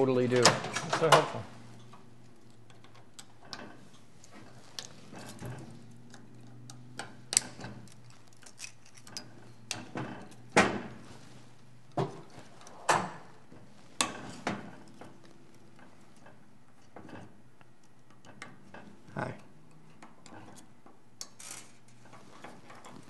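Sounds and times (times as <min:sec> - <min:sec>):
small metal parts clicking: 0:06.1 - 0:09.8.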